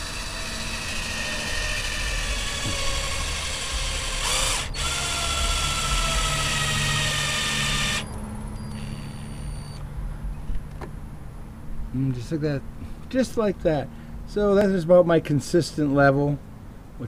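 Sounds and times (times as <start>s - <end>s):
cordless drill motor whine: 0.0s - 9.8s.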